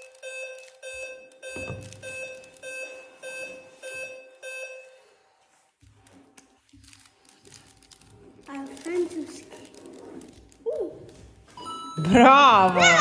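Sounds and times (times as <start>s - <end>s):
short chiming beep: 11.6s - 12.2s.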